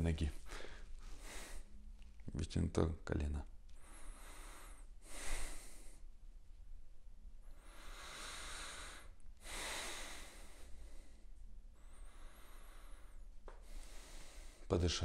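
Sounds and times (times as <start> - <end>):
person breathing slowly and deeply: 0.4 - 1.8, 3.7 - 6.2, 7.4 - 14.8.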